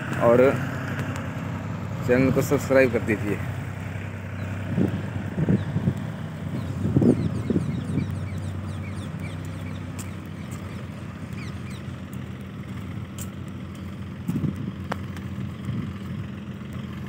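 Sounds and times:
diesel tractor engine idling: 0:00.0 - 0:17.0
bird chirps: 0:06.5 - 0:12.0.

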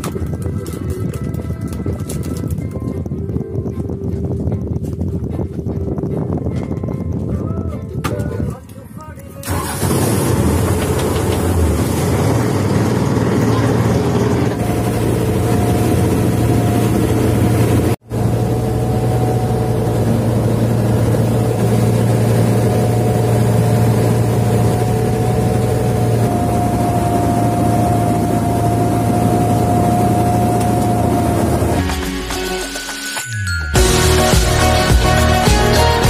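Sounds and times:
boat engine humming with whine: 0:00.0 - 0:08.6, 0:09.4 - 0:32.0
water rushing along hull: 0:09.4 - 0:32.0.

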